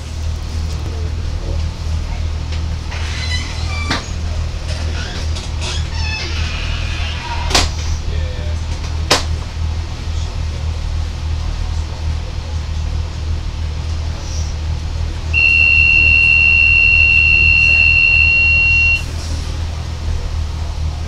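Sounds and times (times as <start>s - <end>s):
diesel railcar drone: 0.0s - 21.0s
high-pitched electronic beep: 15.4s - 19.1s.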